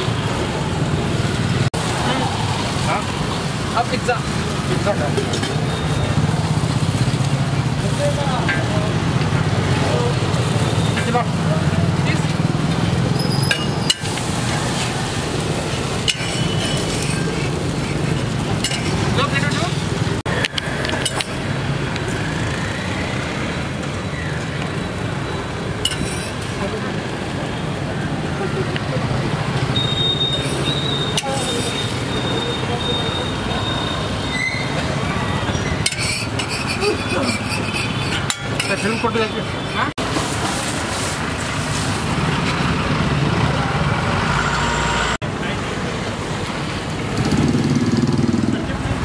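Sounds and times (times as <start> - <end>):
traffic hum: 0.0 - 49.0
metal spatula scraping griddle: 13.2 - 19.2, 25.8 - 26.6, 30.2 - 32.1, 35.7 - 41.9
batter sizzling on griddle: 13.9 - 19.2
metal utensils and dishes clattering: 15.6 - 19.7, 20.9 - 21.4, 25.8 - 26.6, 30.3 - 32.1, 35.6 - 40.8
crowd murmur: 25.8 - 40.0.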